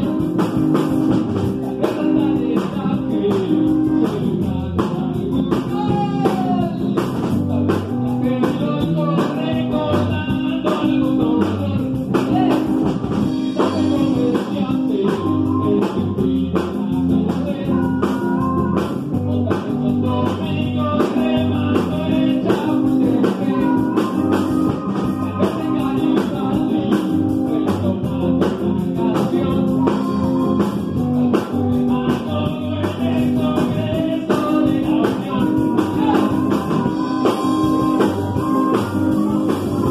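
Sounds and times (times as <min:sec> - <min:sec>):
drum kit: 0:00.0 - 0:39.9
electric bass: 0:00.0 - 0:39.9
electric guitar: 0:00.0 - 0:39.9
person singing: 0:00.0 - 0:39.9.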